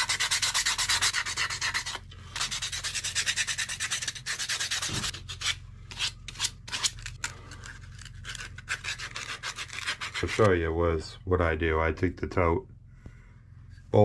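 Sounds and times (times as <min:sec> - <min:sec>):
sandpaper rubbing on wood: 0:00.0 - 0:07.0, 0:08.0 - 0:10.5.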